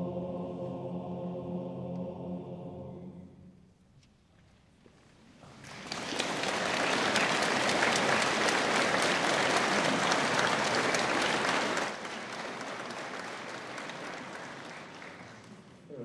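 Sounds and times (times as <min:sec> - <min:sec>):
audience applauding: 0:05.5 - 0:15.9.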